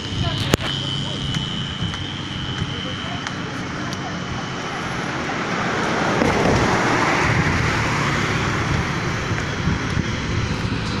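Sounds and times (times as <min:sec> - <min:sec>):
steady traffic noise: 0:00.0 - 0:11.0
car passing close by: 0:05.0 - 0:09.8.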